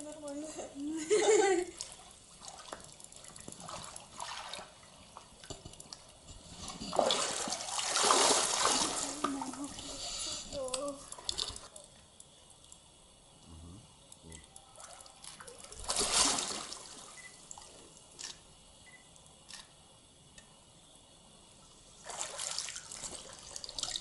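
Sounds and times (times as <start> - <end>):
water sloshing and splashing: 0.0 - 11.9, 14.6 - 18.3, 22.0 - 24.0
water dripping: 0.0 - 19.7, 21.6 - 24.0
loud splash: 6.9 - 9.4, 15.6 - 17.0.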